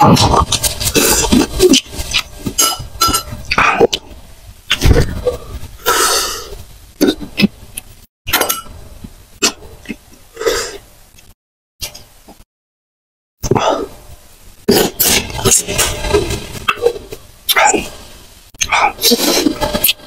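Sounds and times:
sucking or swallowing: 0.0 - 4.1, 4.7 - 7.6.

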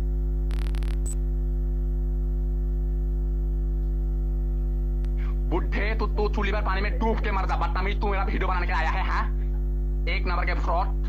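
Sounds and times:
electrical mains hum: 0.0 - 11.0
click: 3.8 - 4.0.

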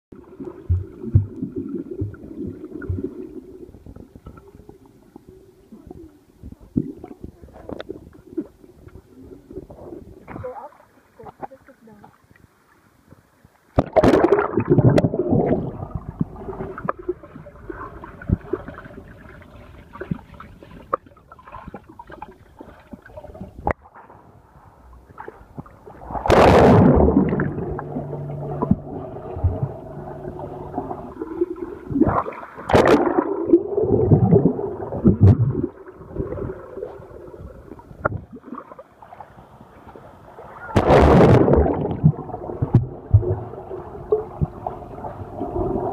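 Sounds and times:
underwater gurgling and bubbling: 0.2 - 10.3, 13.8 - 23.7, 25.1 - 45.9
low steady hum: 14.2 - 21.8, 24.7 - 38.4, 39.2 - 45.9
loud water splashes: 26.0 - 36.6, 40.6 - 43.5.

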